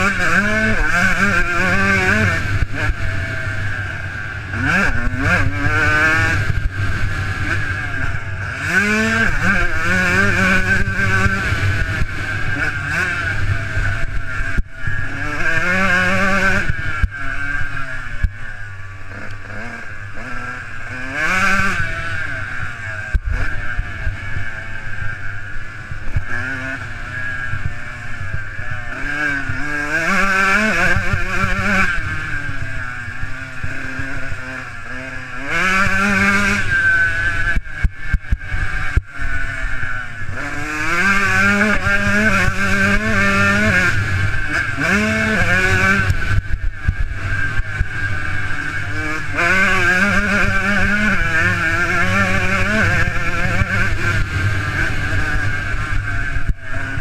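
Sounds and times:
motocross bike engine revving: 0.0 - 57.0
steady rush of noise: 0.0 - 57.0.

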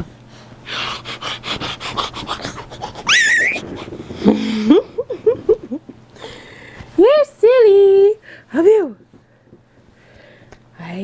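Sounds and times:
baby squealing: 3.0 - 3.7.

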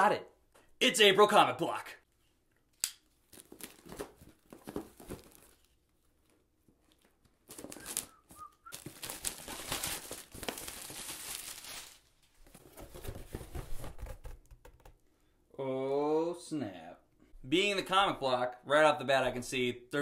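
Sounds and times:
cardboard scraping and rustling: 8.8 - 14.5.

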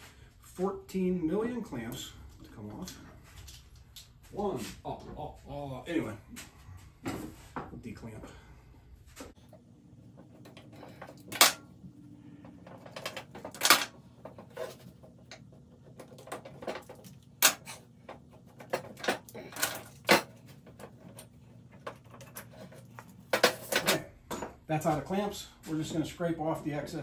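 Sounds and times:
clamps clicking and rattling: 12.4 - 24.6.

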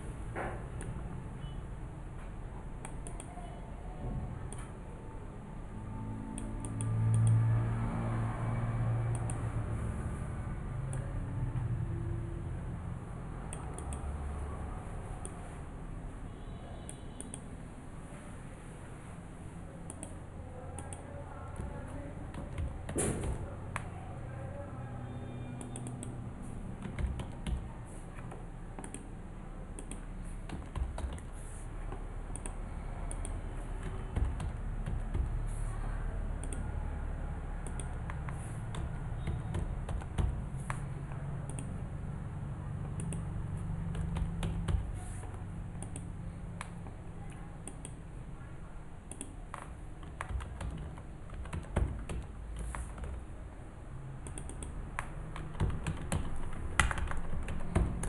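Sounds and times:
keyboard keystroke clicks: 25.6 - 26.2, 26.8 - 29.1, 29.7 - 31.4, 32.3 - 35.5, 36.4 - 36.7, 37.6 - 41.8, 42.8 - 48.0, 49.0 - 53.2, 54.2 - 58.0.

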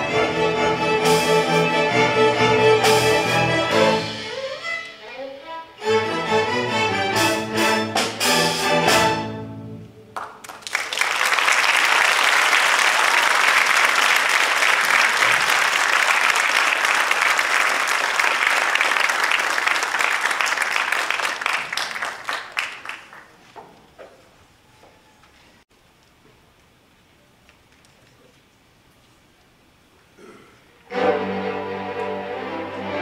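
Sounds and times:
string orchestra with drums: 0.0 - 9.8, 30.9 - 33.0
audience applause: 10.2 - 23.5.

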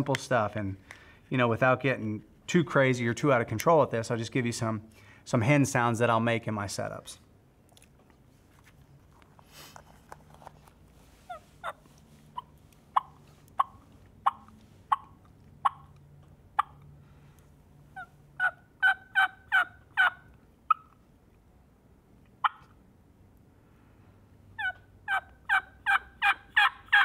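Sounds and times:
turkey call yelps: 12.4 - 15.9, 16.6 - 16.8, 18.0 - 21.0, 22.4 - 22.8, 24.6 - 27.0
turkey mouth call notes: 12.4 - 15.9.

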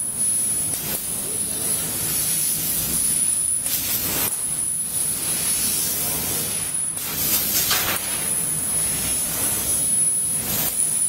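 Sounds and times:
laser cutter air hiss: 0.0 - 11.0
thin high whine: 0.0 - 11.0.

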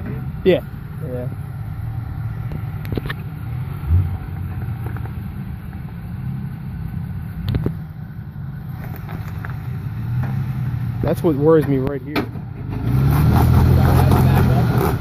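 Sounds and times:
truck engine running at low revs: 0.0 - 15.0.

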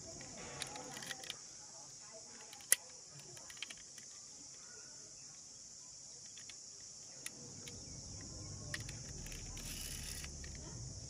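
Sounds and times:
high-pitched insect chorus: 0.0 - 11.0
small clicks: 0.2 - 1.4, 2.3 - 4.6, 6.2 - 10.8.

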